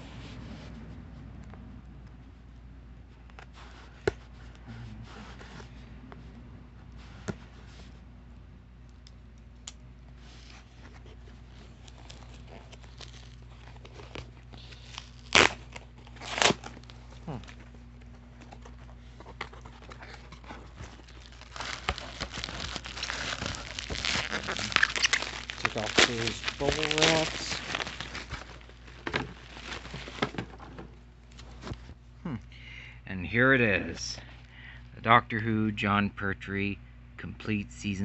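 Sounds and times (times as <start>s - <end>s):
bubble wrap crinkling: 10.1s - 32.0s.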